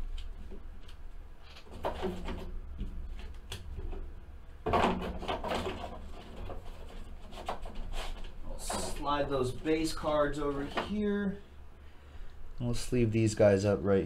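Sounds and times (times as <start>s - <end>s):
rustling and knocking of objects: 0.0s - 11.2s
low steady hum: 0.0s - 14.0s.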